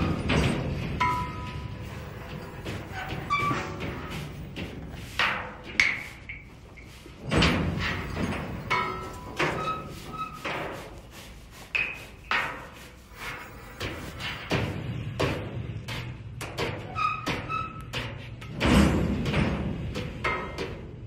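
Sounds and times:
dumpsters struck as percussion: 0:18.2 - 0:21.0.

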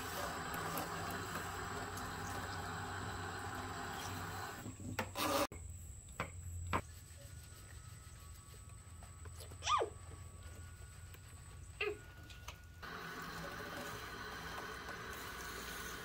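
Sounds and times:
shower sprayer water hissing: 0:00.0 - 0:05.5, 0:12.8 - 0:16.0.

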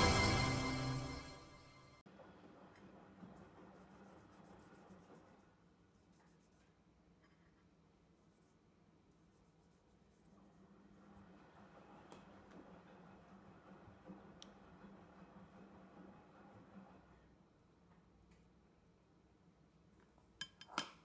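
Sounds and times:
scratchy rubbing: 0:03.2 - 0:06.8, 0:08.1 - 0:11.0.

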